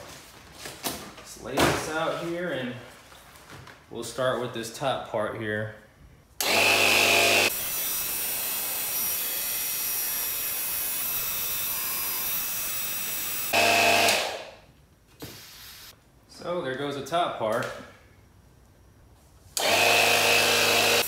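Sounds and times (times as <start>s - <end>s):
tire inflator buzzing hum: 6.4s - 14.6s, 19.6s - 21.0s.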